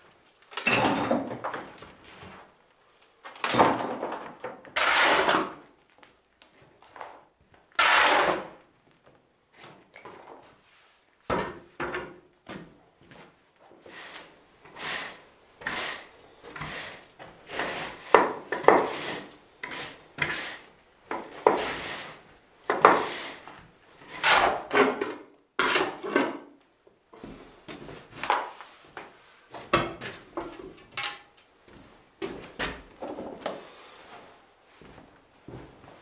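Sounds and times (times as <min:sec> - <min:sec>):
broom sweeping concrete floor: 0:04.8 - 0:05.6, 0:07.8 - 0:08.6, 0:10.4 - 0:11.3, 0:13.1 - 0:24.9, 0:27.3 - 0:31.2.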